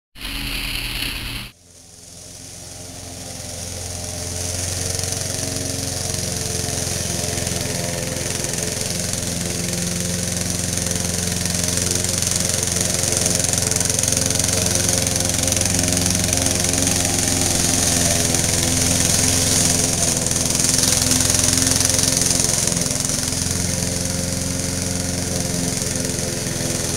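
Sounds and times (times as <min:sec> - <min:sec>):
lawn mower engine running: 0:00.2 - 0:26.9.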